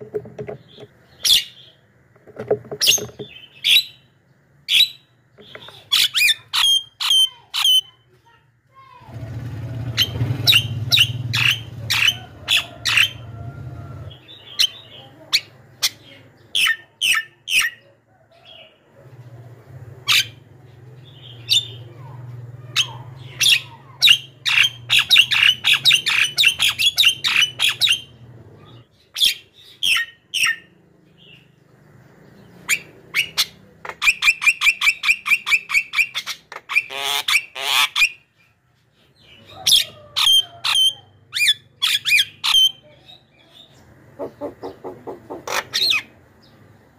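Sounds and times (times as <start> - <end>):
bird squawking and clicking: 33.2 - 38.1.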